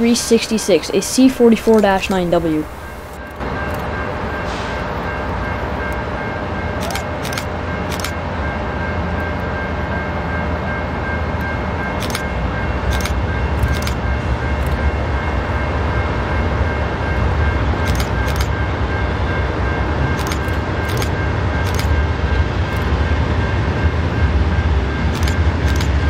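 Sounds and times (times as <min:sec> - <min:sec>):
train wheels rumbling on rail: 0:00.0 - 0:26.0
sharp clicks: 0:06.8 - 0:08.2, 0:12.0 - 0:12.2, 0:20.2 - 0:21.9, 0:25.1 - 0:26.0.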